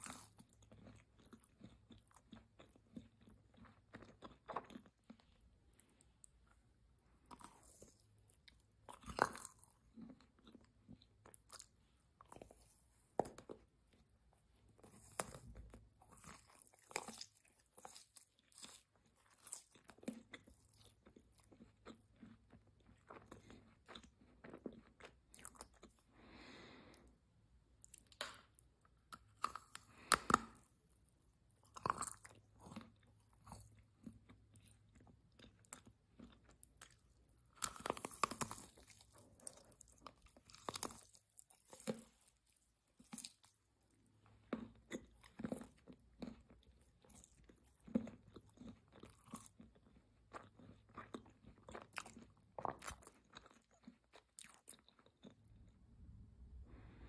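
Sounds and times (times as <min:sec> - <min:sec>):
wet chewing: 0:00.0 - 0:06.6, 0:07.2 - 0:27.0, 0:27.8 - 0:55.7
chocolate shell crunching: 0:27.8 - 0:30.8, 0:31.5 - 0:43.6.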